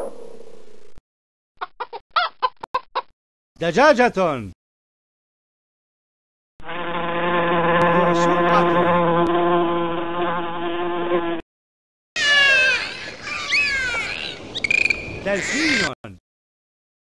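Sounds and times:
insect wing buzz: 0:06.6 - 0:11.4.

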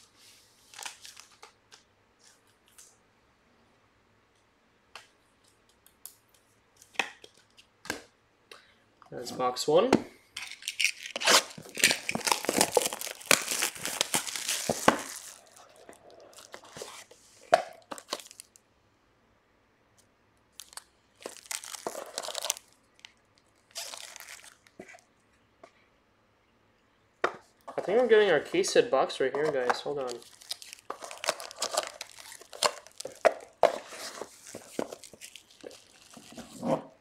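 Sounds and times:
wrapping crinkling and tearing: 0:00.0 - 0:03.0, 0:10.4 - 0:18.6, 0:20.5 - 0:25.0, 0:29.4 - 0:36.7
cardboard and foil rustles: 0:10.7 - 0:18.6, 0:20.6 - 0:22.7, 0:23.6 - 0:24.7, 0:29.6 - 0:36.6.

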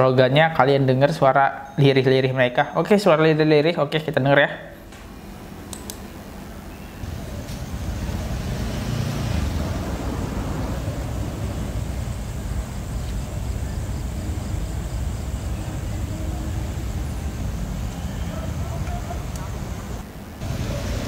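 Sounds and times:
motorbike engines rumbling: 0:07.0 - 0:21.0.

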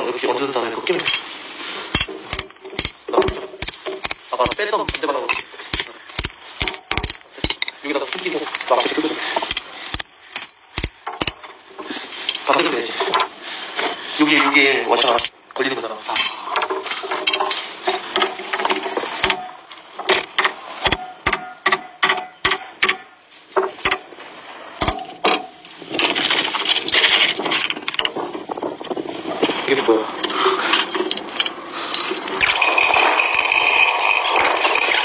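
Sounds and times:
people talking: 0:00.0 - 0:01.2, 0:03.1 - 0:03.5, 0:04.3 - 0:05.4, 0:07.4 - 0:09.2, 0:12.4 - 0:13.1, 0:14.2 - 0:16.1, 0:29.7 - 0:30.1
noisy sound with high whine: 0:00.0 - 0:35.0
metal knocks on steel track: 0:09.4 - 0:11.6, 0:19.2 - 0:24.1.

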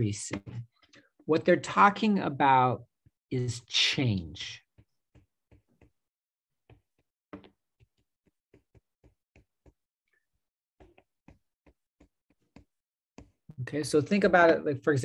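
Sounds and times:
stylus tapping on a tablet: 0:04.8 - 0:06.0, 0:06.7 - 0:09.8, 0:10.8 - 0:13.5.

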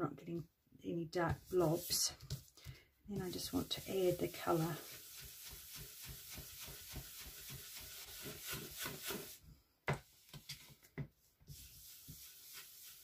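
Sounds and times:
brush rubbing on cardstock: 0:01.3 - 0:02.4, 0:03.2 - 0:09.4, 0:11.5 - 0:13.0.

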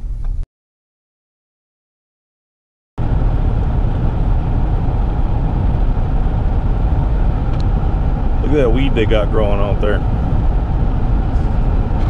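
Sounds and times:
road and wind noise inside truck: 0:03.0 - 0:12.0.

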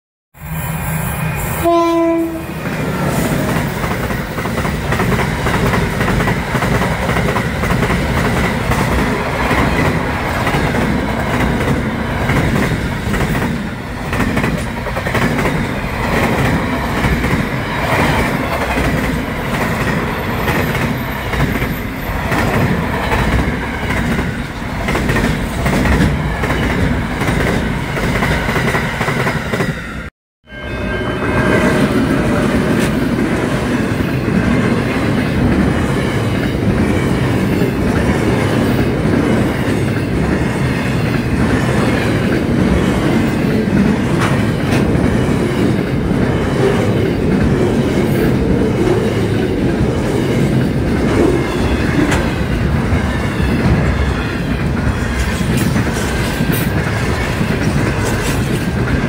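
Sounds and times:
train horn: 0:00.4 - 0:03.8
freight train rolling past: 0:00.4 - 0:59.0.

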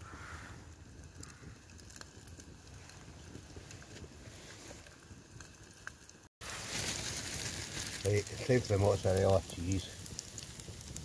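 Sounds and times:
campfire crackling and popping: 0:00.0 - 0:11.0
burgers sizzling on grill: 0:06.0 - 0:11.0.

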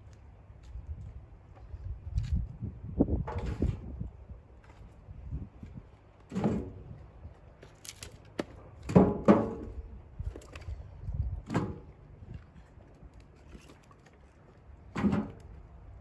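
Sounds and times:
firewood logs clonking: 0:07.6 - 0:10.8, 0:14.9 - 0:15.6.

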